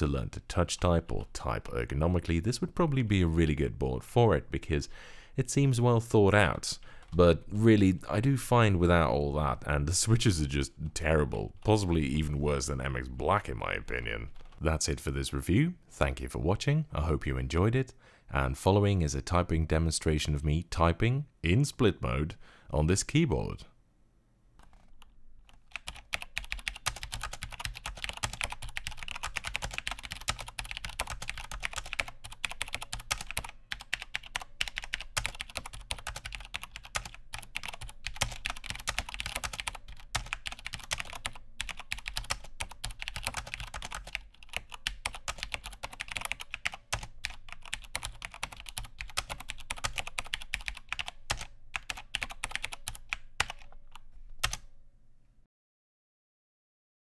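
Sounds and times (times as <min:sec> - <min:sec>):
keyboard typing: 0:24.6 - 0:54.7.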